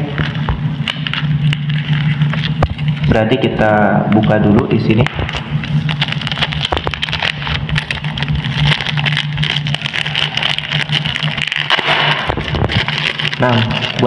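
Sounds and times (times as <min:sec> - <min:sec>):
plastic sleeve crinkling: 0:00.0 - 0:14.0.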